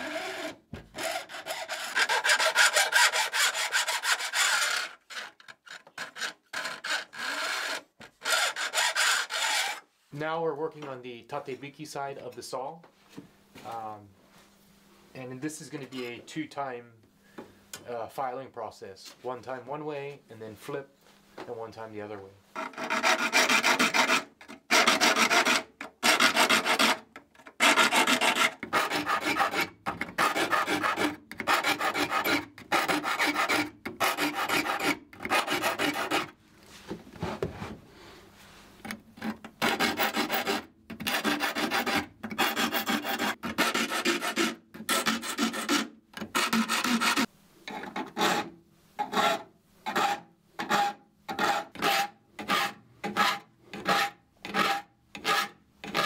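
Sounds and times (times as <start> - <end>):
file rasping on saw teeth: 0.0 - 9.8, 22.6 - 36.4, 39.6 - 56.0.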